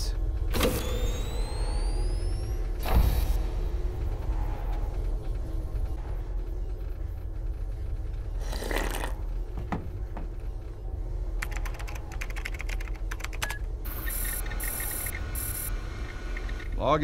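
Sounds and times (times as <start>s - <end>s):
typing on computer keyboard: 11.4s - 13.6s
electronic computer chirping: 11.4s - 16.7s.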